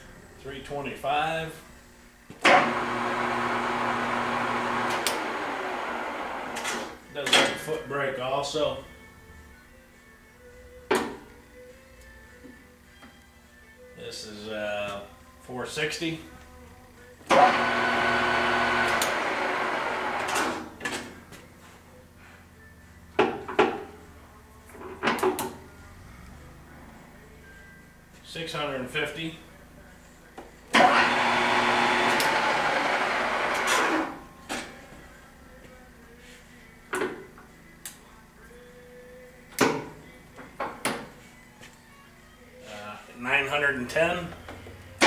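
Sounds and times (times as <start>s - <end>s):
lathe spindle running: 2.5s - 6.6s, 17.3s - 20.4s, 30.8s - 34.1s.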